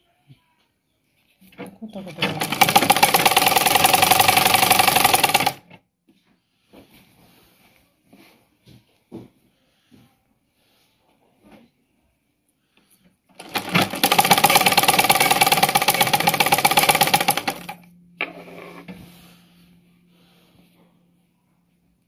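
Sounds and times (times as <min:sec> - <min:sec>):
sewing machine stitching: 0:01.5 - 0:05.8, 0:13.3 - 0:17.8
low steady hum: 0:17.5 - 0:22.0.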